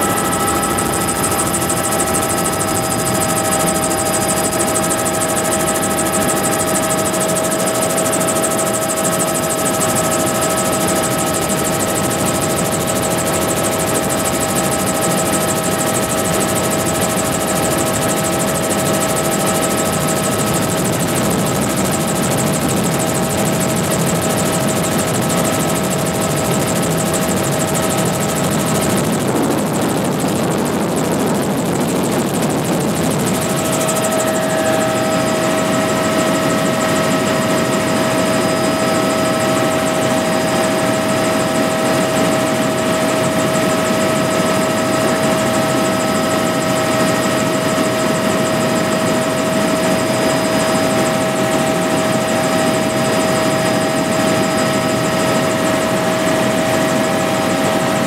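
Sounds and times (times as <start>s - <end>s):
high whine: 0.0s - 7.6s, 28.3s - 40.6s
helicopter engine and rotor drone: 0.0s - 58.0s.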